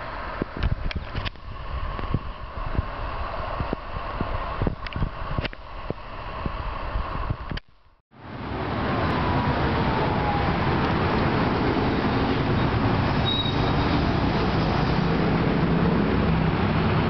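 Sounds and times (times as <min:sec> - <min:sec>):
wind rumble on microphone: 0:00.0 - 0:07.6
cars passing: 0:08.2 - 0:17.0.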